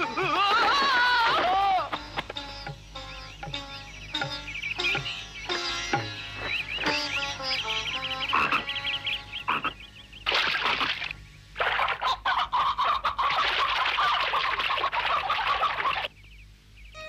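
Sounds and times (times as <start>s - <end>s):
wings flapping: 10.3s - 12.4s, 13.1s - 16.1s
cartoon hen squawking: 10.4s - 16.1s.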